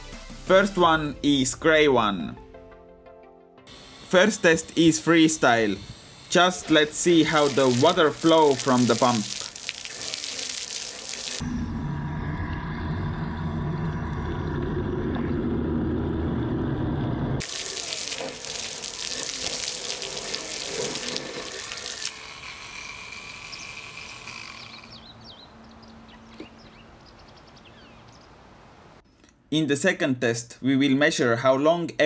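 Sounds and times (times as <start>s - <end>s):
water jet splashing on gravel: 3.7s - 11.4s, 17.4s - 24.8s
water pump churning water: 3.7s - 11.4s, 17.4s - 25.3s
water trickling and dripping: 6.9s - 11.4s, 17.4s - 22.8s.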